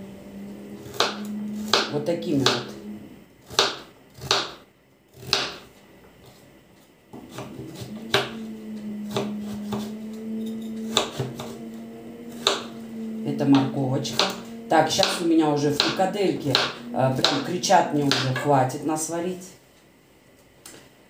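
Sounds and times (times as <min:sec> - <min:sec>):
steady low hum: 0:00.0 - 0:21.0
knife chopping on wooden board: 0:03.5 - 0:04.6, 0:05.2 - 0:05.7.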